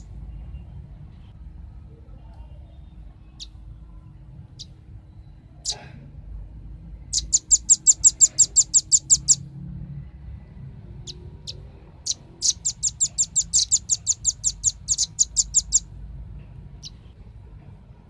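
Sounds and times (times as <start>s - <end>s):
bird calling sharp high chips: 7.1s - 9.4s, 11.1s - 15.8s.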